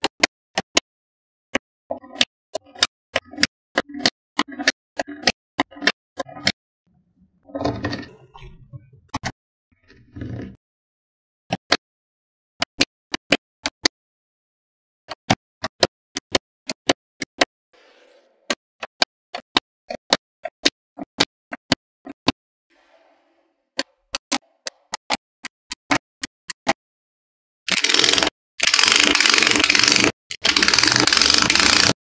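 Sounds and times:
magnetic balls clicking: 27.7 - 32.0.

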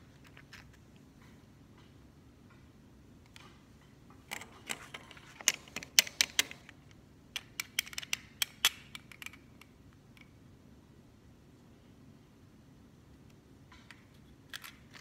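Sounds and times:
plastic toy clicks and taps: 7.4 - 9.4.

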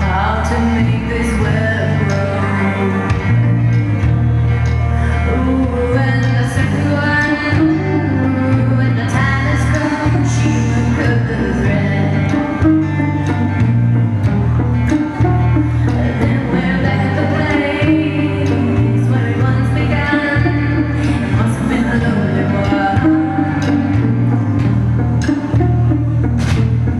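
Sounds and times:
woman singing: 0.0 - 3.8, 5.0 - 13.4, 15.4 - 24.7
bass line: 0.0 - 26.9
live band playing: 0.0 - 26.9.

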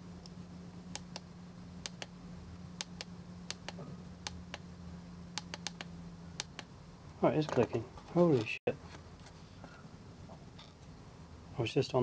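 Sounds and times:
mouse switch clicking: 1.8 - 2.1, 5.4 - 6.7.

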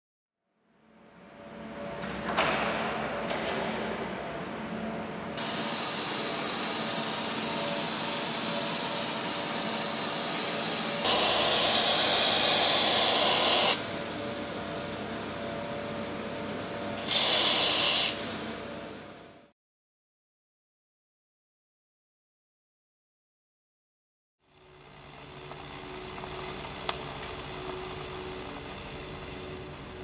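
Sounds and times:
aerosol spray hissing: 5.4 - 13.8, 17.0 - 18.4.

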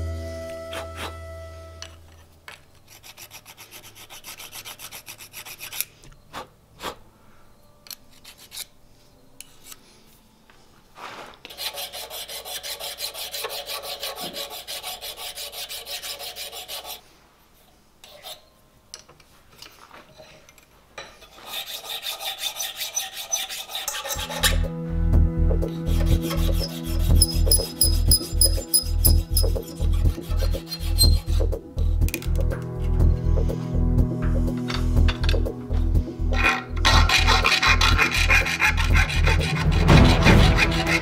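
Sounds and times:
hand file rasping on metal: 2.9 - 5.9, 11.5 - 17.0, 21.2 - 24.6, 25.6 - 31.9, 36.4 - 41.0.

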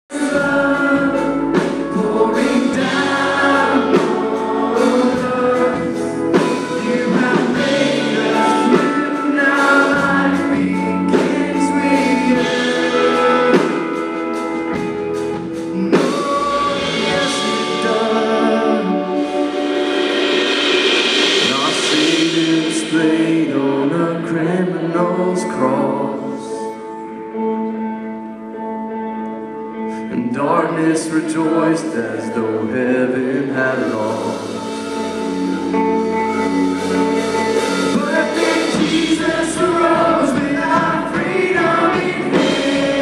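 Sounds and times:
steady drum beat: 0.1 - 24.2, 34.0 - 43.0
crowd singing along: 0.1 - 27.6, 30.4 - 43.0
guitar: 0.1 - 43.0
worship band playing: 0.1 - 43.0.

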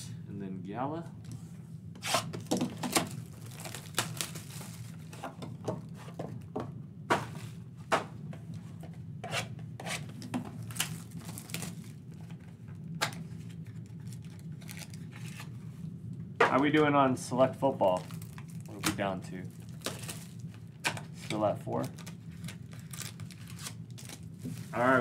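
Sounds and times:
plastic wrap crinkling and tearing: 2.2 - 5.2, 10.6 - 12.4, 13.1 - 15.5, 17.8 - 25.0.

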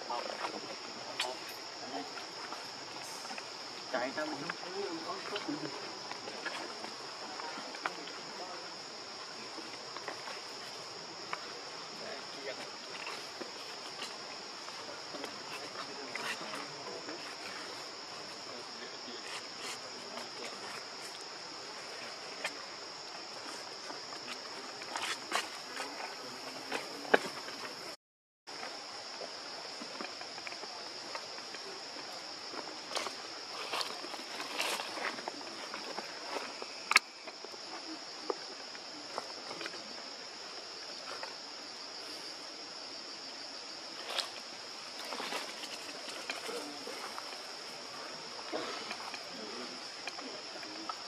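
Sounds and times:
insects droning: 0.0 - 51.0
small ticks and rustles: 28.5 - 42.2, 43.9 - 51.0.

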